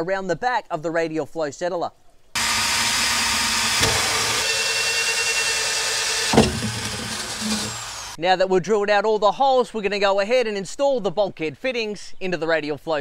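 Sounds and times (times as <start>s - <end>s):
electric drill grinding through plastic: 2.4s - 8.2s.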